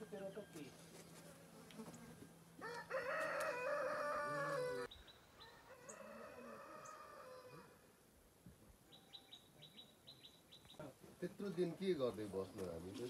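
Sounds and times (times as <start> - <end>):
rooster crowing: 2.6 - 7.9.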